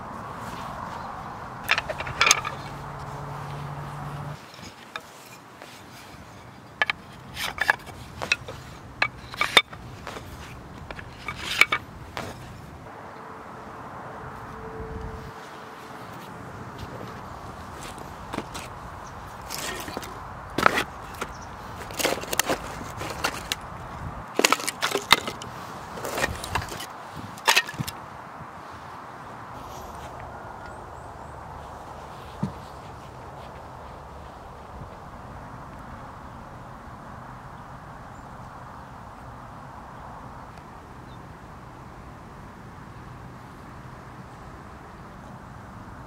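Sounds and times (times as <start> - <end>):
wooden poles clacking together: 0.8 - 12.9, 16.7 - 28.1.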